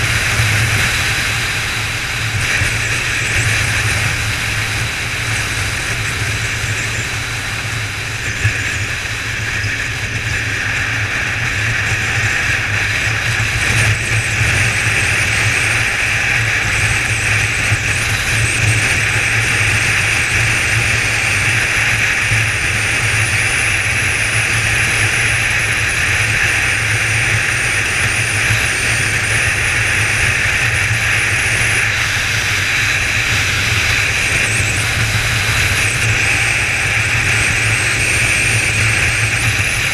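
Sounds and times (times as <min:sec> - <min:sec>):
motorcycle engine cruising: 0:00.0 - 0:39.9
wind rush: 0:00.0 - 0:39.9.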